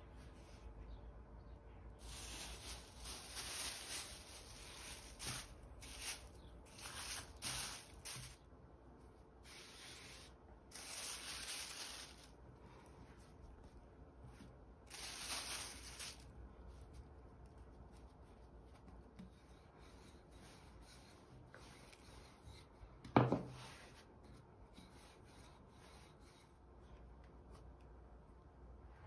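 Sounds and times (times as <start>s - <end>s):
hands brushing floured worktop: 2.0s - 8.4s
plastic sheet rustling: 2.0s - 8.5s, 9.4s - 12.4s, 14.8s - 16.4s.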